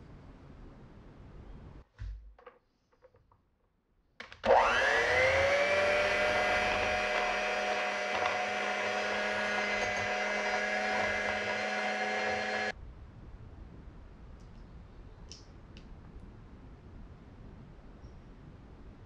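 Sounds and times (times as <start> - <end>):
electric hand mixer whine: 4.4 - 12.8.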